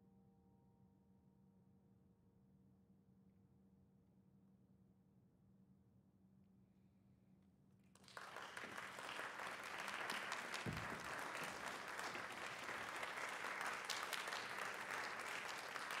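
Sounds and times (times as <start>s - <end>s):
audience applauding: 8.0s - 16.0s.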